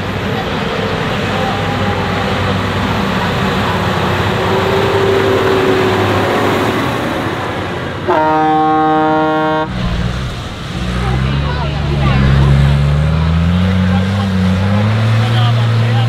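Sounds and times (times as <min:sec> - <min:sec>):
tractor diesel engine under load: 0:00.0 - 0:16.0
loud horn blaring: 0:08.0 - 0:11.2.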